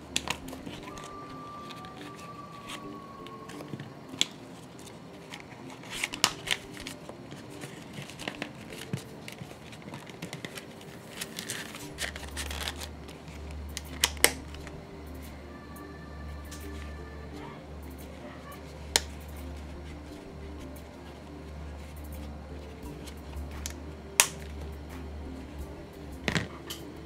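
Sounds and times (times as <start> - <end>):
quiet background music: 0.0 - 27.0
leather and card rustling: 0.2 - 14.8, 16.6 - 25.6
low hum: 10.8 - 27.0
wallet snap clicks: 18.9 - 19.4, 23.1 - 24.6.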